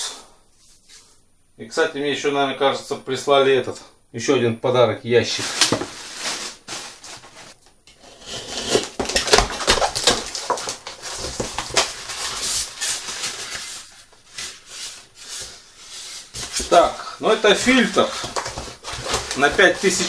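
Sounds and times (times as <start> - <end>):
packaging rustling: 5.3 - 20.0.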